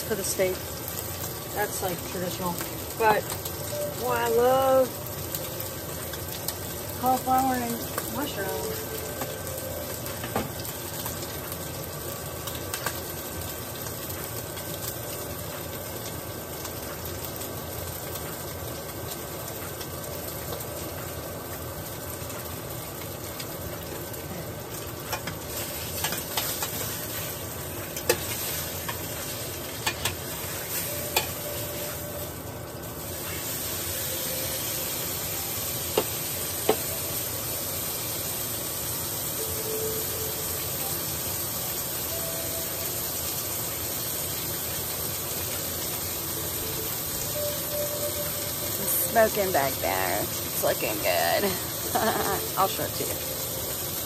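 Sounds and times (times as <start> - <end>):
steak sizzling in frying pan: 0.0 - 54.0.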